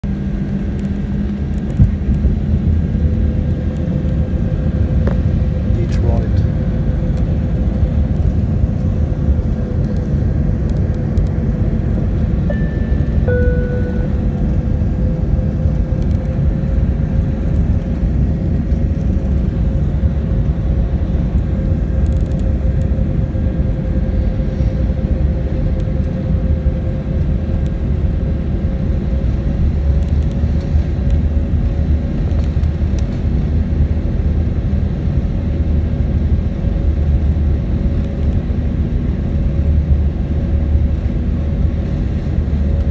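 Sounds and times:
jet engine and airflow rumble: 0:00.0 - 0:42.9
steady tone: 0:12.3 - 0:15.5
two-note falling chime: 0:12.5 - 0:14.3.

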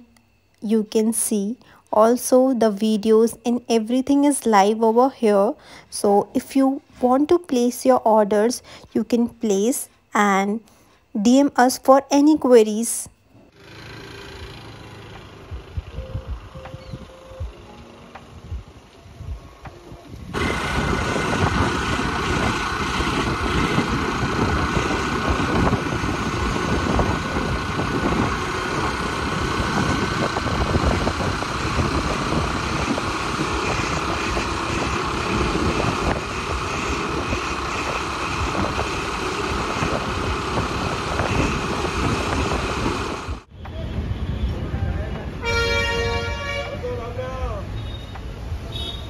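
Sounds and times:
outdoor background: 0:00.0 - 0:49.0
vehicle engine and road noise: 0:13.5 - 0:49.0
wind rumble on microphone: 0:15.5 - 0:17.6, 0:18.3 - 0:45.4.

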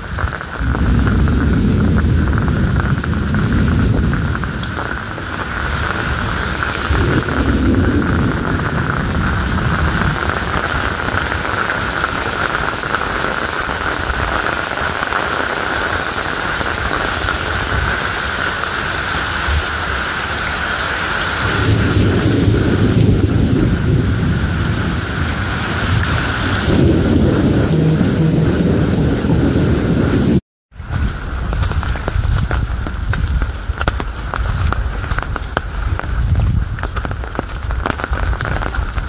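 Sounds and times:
deep thunder rumbling: 0:00.0 - 0:18.0, 0:21.4 - 0:33.7
heavy rain pouring: 0:00.0 - 0:39.0.

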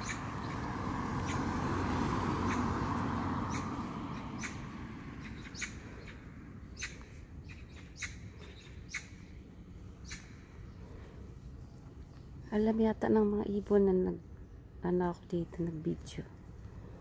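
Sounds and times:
small bird chirping: 0:05.2 - 0:09.4, 0:10.0 - 0:10.8.

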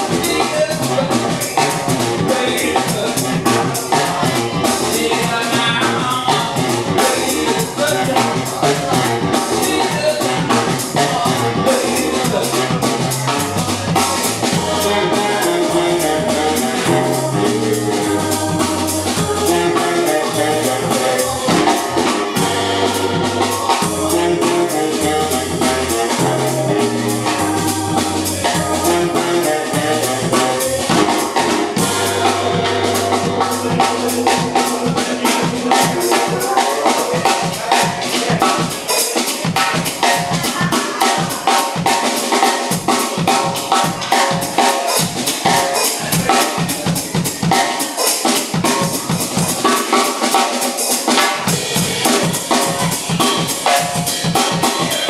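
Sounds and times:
baritone saxophone riff: 0:00.0 - 0:42.0
drum kit fast beat: 0:00.0 - 0:55.0.

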